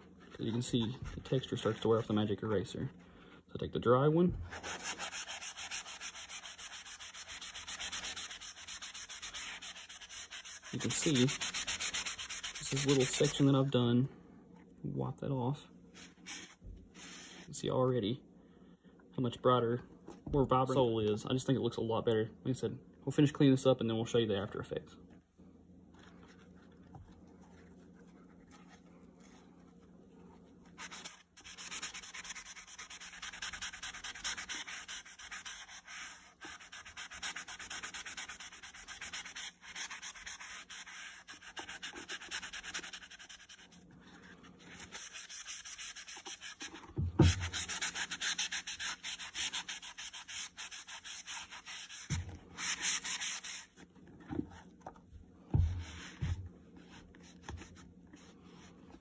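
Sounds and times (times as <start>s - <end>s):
towel rubbing boot sole: 4.4s - 13.6s, 30.7s - 43.7s, 44.7s - 53.8s.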